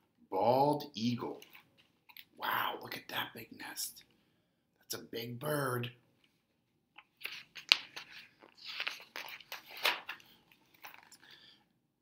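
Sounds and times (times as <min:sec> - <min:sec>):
paper pages rustling: 0:07.0 - 0:11.3.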